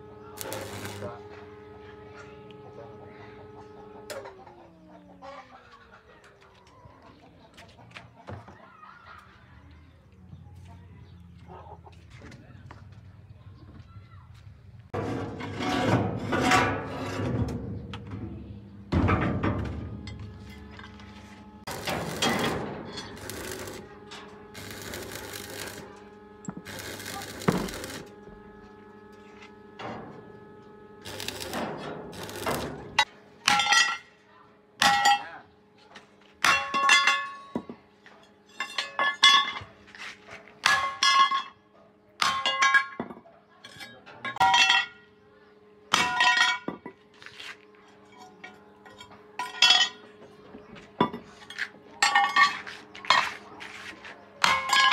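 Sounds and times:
metal scraping on metal: 0:15.0 - 0:17.5, 0:20.1 - 0:26.0.

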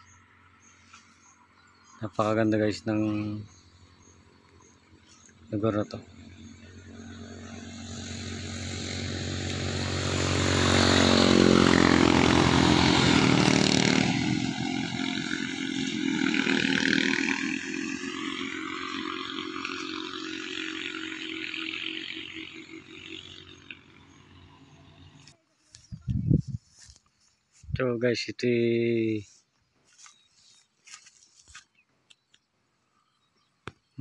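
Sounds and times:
vehicle driving past: 0:03.4 - 0:25.4.

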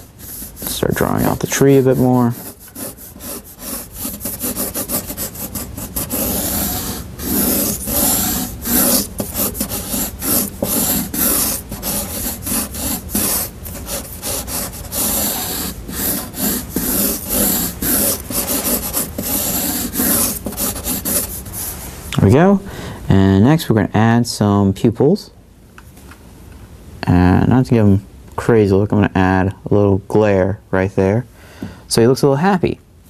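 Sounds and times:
marker pen scratching paper: 0:00.0 - 0:21.7.

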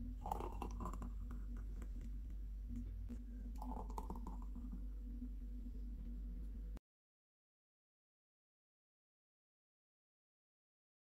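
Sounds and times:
steady low hum: 0:00.0 - 0:06.8
milkshake pouring: 0:00.2 - 0:02.1, 0:03.5 - 0:04.8.

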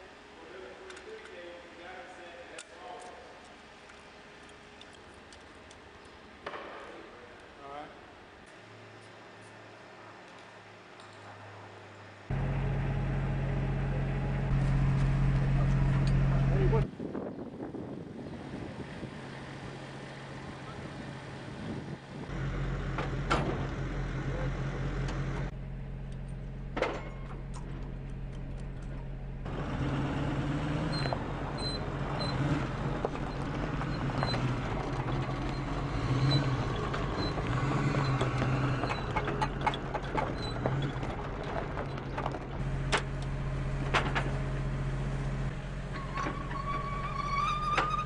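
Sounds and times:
vehicle engine running: 0:12.3 - 0:16.9, 0:19.1 - 0:46.6
metallic clanks and knocks: 0:26.7 - 0:29.1, 0:38.1 - 0:43.1.

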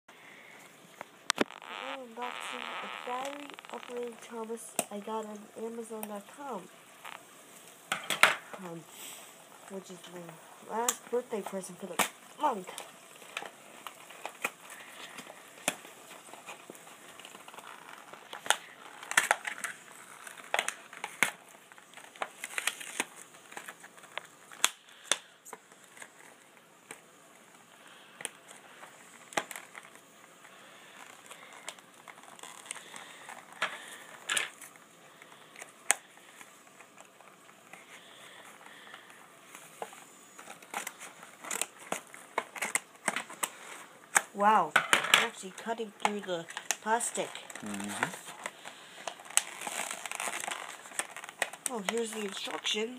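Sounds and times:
cardboard tearing and crinkling: 0:01.4 - 0:04.6, 0:10.7 - 0:44.3, 0:46.0 - 0:52.9
scissors cutting packaging: 0:11.8 - 0:26.4, 0:40.4 - 0:44.3, 0:45.3 - 0:52.9.

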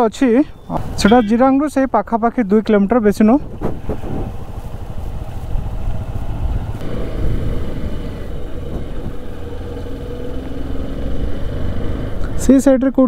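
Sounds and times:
wind rumble on microphone: 0:03.0 - 0:12.4
motorcycle engine: 0:03.4 - 0:12.5.

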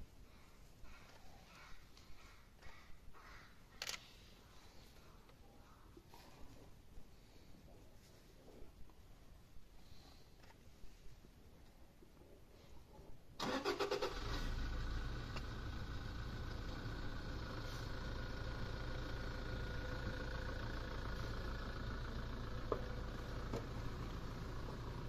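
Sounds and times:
vehicle engine cranking and idling: 0:13.4 - 0:25.0.

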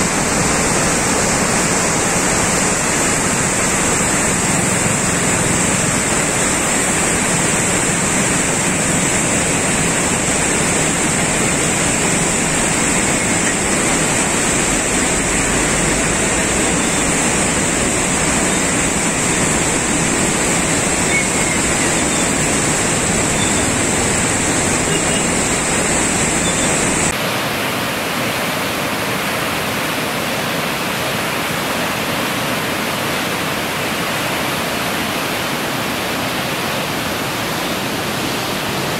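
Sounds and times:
steady high whine: 0:00.0 - 0:27.1
river rushing in flood: 0:00.0 - 0:38.9.

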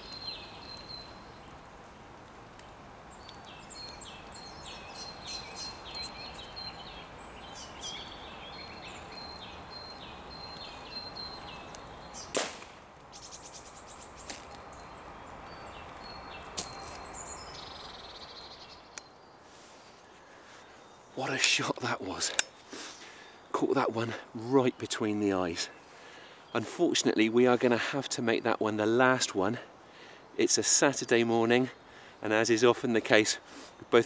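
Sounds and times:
birds singing: 0:00.0 - 0:01.7, 0:02.5 - 0:34.0
air rifle shot: 0:12.3 - 0:12.8.

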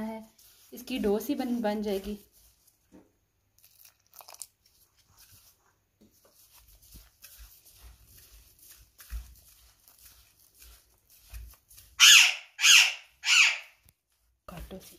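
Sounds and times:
dough crunching and squishing: 0:00.0 - 0:12.0.

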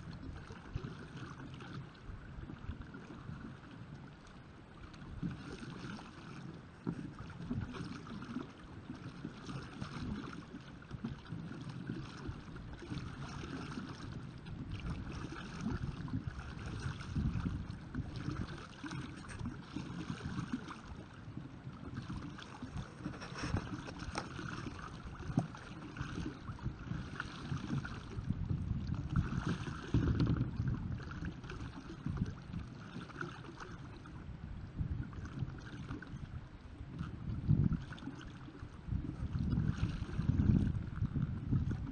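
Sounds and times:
water splashing and churning: 0:00.0 - 0:41.9
wind on microphone: 0:11.0 - 0:32.8, 0:33.7 - 0:41.9.

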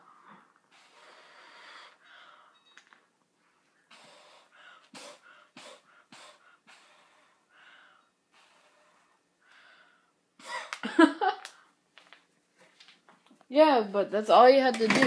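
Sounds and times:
quick breaths: 0:00.0 - 0:02.6, 0:03.8 - 0:10.7
puffs through bubble blower: 0:03.9 - 0:07.2.

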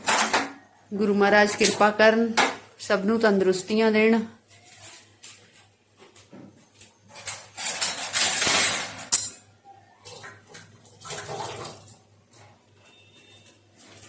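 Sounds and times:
steel dishes clinking: 0:07.4 - 0:09.5
metal pot clanking: 0:07.7 - 0:09.5
tap water running into a pot: 0:10.0 - 0:12.4.

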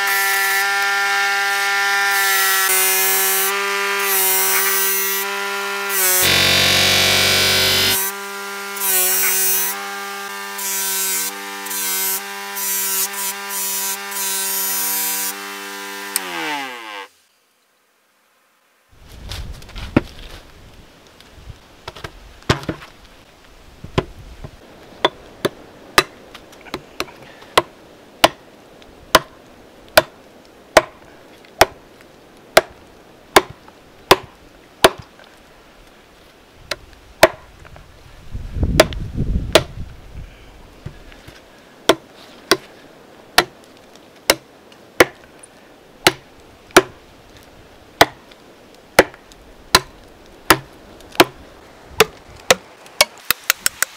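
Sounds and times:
blade chopping into wood: 0:33.4 - 0:35.1, 0:37.2 - 0:37.4, 0:38.8 - 0:39.8, 0:43.4 - 0:43.6, 0:45.0 - 0:45.2, 0:46.0 - 0:46.2, 0:46.8 - 0:47.0, 0:48.0 - 0:48.2, 0:49.0 - 0:49.9, 0:50.5 - 0:51.4, 0:52.0 - 0:53.9.

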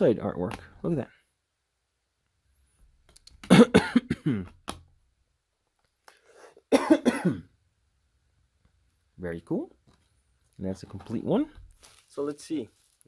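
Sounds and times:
man coughing: 0:03.5 - 0:04.6, 0:06.7 - 0:07.5.

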